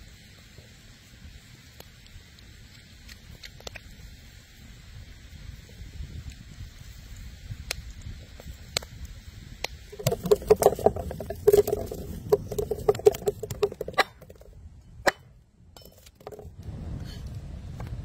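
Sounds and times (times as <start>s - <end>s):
shallots rolling on wooden table: 9.9s - 15.2s, 15.8s - 16.6s.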